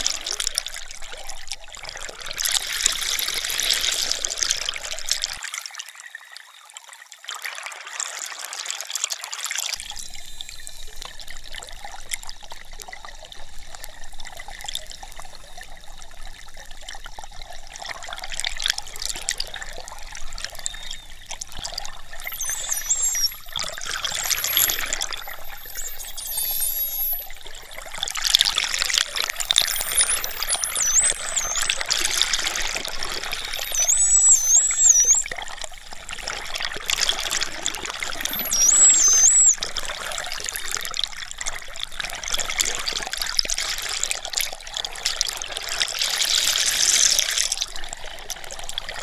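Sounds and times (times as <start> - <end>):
dolphin whistles: 9.8 - 13.6, 19.5 - 35.5, 38.0 - 39.9, 46.1 - 47.5.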